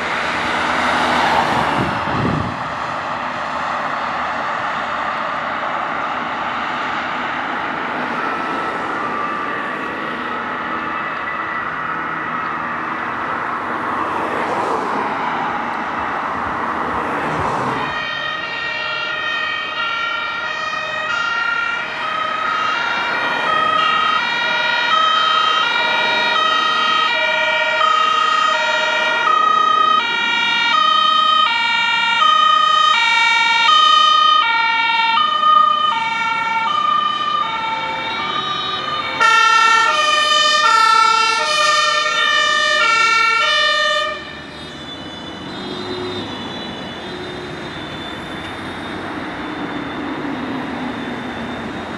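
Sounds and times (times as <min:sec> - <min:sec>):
loud bright siren: 0:00.0 - 0:51.9
two-tone emergency sirens: 0:00.0 - 0:51.9.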